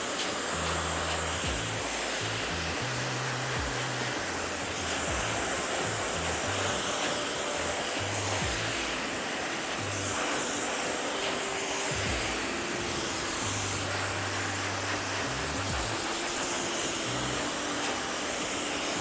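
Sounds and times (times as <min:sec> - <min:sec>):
hair dryer blowing: 0:00.0 - 0:19.0
background music with bass line: 0:00.6 - 0:06.9, 0:07.6 - 0:09.1, 0:11.9 - 0:12.6, 0:13.4 - 0:16.2.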